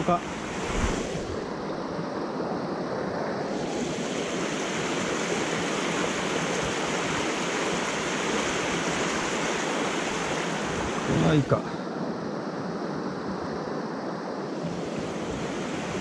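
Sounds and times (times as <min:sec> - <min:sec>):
stream rushing over rocks: 0:03.6 - 0:11.9.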